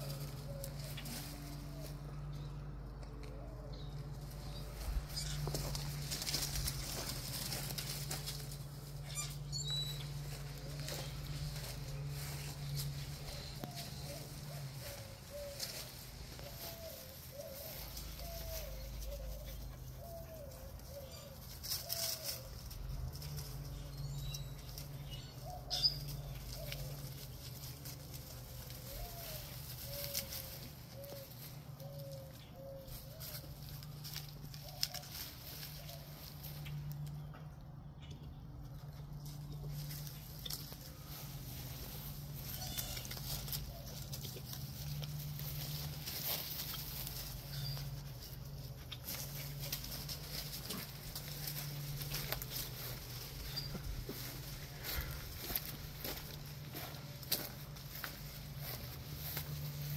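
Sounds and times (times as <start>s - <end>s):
puppies rustling through leaves: 0.0s - 37.2s, 38.7s - 59.9s
steady low hum: 0.0s - 59.9s.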